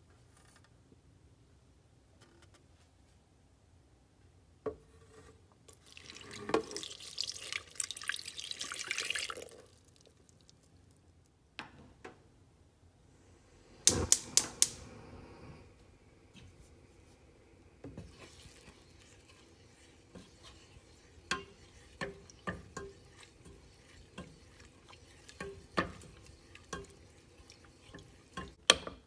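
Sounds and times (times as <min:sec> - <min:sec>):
water pouring into a pot: 0:05.7 - 0:10.6, 0:17.8 - 0:28.6
gas stove igniter clicking: 0:13.8 - 0:14.8.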